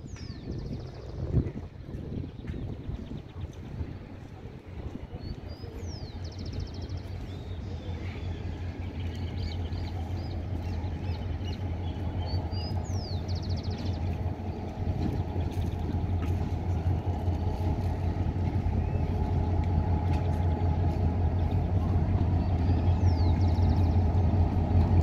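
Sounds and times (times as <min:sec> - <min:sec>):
locomotive engine rumble: 0:00.0 - 0:25.0
birds chirping: 0:05.5 - 0:25.0.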